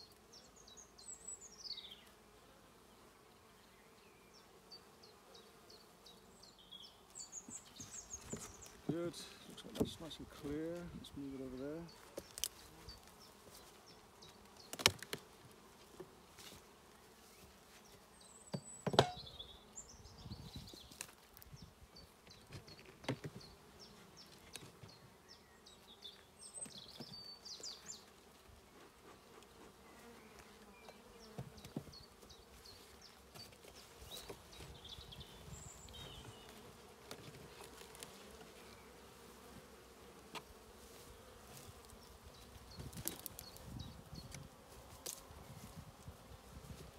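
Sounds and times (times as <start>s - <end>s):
wooden knocks of hive boxes: 8.2s - 10.1s, 18.4s - 19.3s, 22.4s - 23.5s, 30.9s - 32.3s
bees humming: 29.7s - 46.7s.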